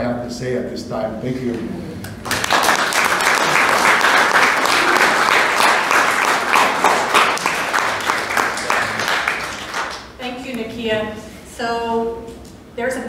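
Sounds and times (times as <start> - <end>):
audience applauding: 2.2 - 10.2.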